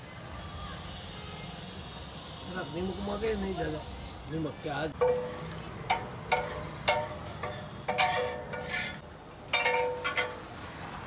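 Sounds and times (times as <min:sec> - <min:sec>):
spatula scraping metal griddle: 0:07.9 - 0:09.0.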